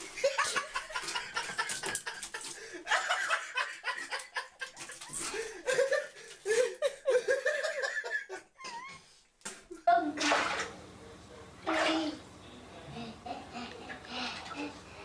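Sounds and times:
person laughing: 0.0s - 9.1s, 12.9s - 15.0s.

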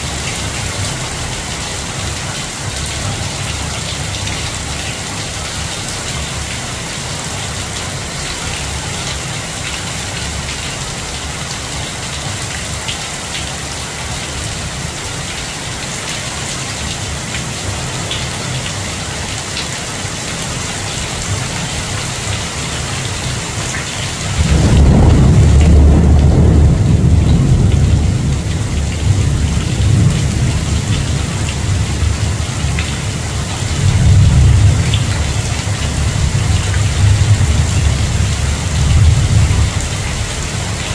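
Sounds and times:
heavy rain pouring: 0.0s - 40.9s
thunder rumbling: 24.3s - 40.3s.

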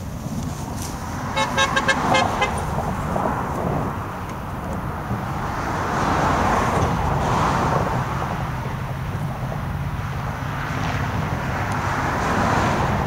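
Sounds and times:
train rushing noise: 0.0s - 10.4s
diesel train rumble: 0.0s - 12.1s.

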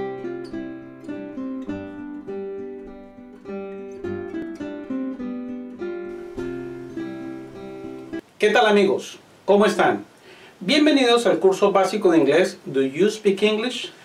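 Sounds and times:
picked instrumental melody: 0.0s - 8.2s.

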